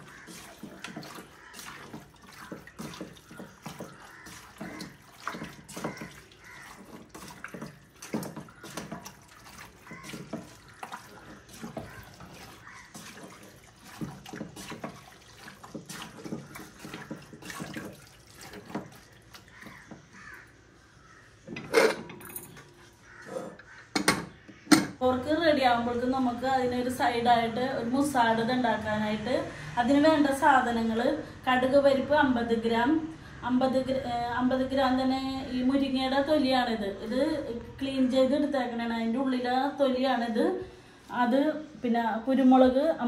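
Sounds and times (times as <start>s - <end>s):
water running into a pot: 0.0s - 20.4s.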